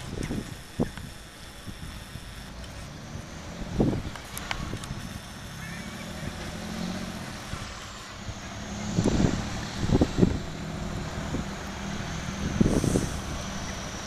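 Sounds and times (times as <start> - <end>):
wind buffeting microphone: 0.0 - 2.1, 3.2 - 5.2, 6.2 - 14.0
steady low hum: 0.0 - 14.0.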